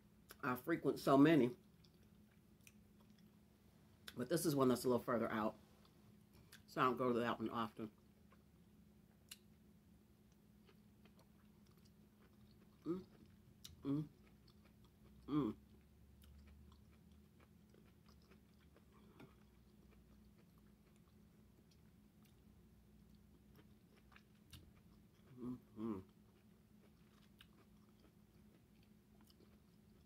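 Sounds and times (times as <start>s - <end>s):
faint steady low hum: 0.0s - 30.0s
person chewing food: 1.6s - 3.4s, 5.8s - 6.7s, 8.0s - 8.5s, 10.2s - 30.0s
person humming: 13.8s - 14.1s, 15.3s - 15.6s, 25.4s - 26.0s.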